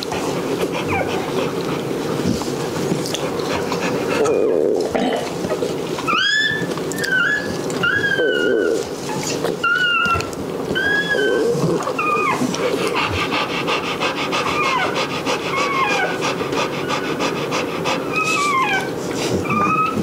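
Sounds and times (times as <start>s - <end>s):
puppies whimpering: 0.0s - 2.4s, 3.1s - 20.0s
dog panting: 0.0s - 4.6s, 12.2s - 20.0s.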